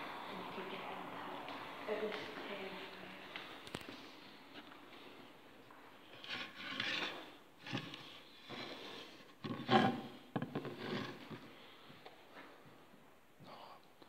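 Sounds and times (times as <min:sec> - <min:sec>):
rubbing and scraping: 0:06.1 - 0:11.8.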